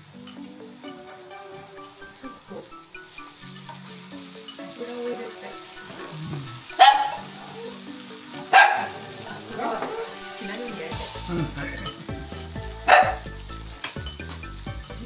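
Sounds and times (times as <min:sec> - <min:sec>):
background music: 0:00.0 - 0:15.0
chicken skin sizzling: 0:00.0 - 0:15.0
dog barking: 0:06.8 - 0:07.6, 0:08.5 - 0:10.2, 0:12.9 - 0:13.2.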